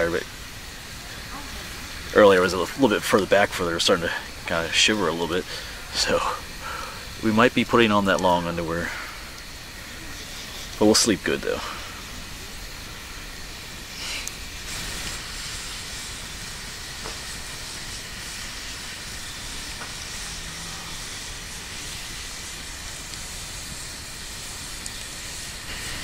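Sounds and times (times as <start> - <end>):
campfire hissing: 0.0 - 26.0
fire pops: 11.8 - 20.3, 21.0 - 26.0.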